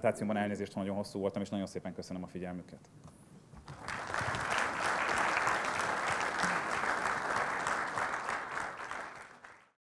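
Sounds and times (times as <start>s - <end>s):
audience applauding: 3.6s - 9.8s.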